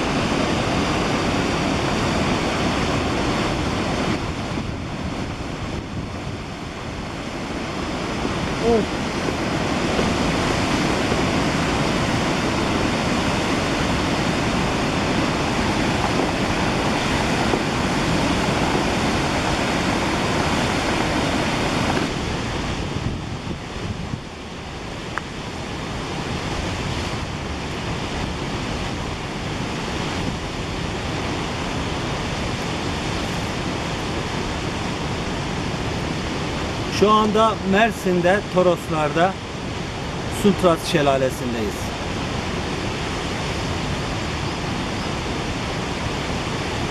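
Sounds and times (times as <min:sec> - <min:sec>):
waterfall rushing: 0:00.0 - 0:46.9.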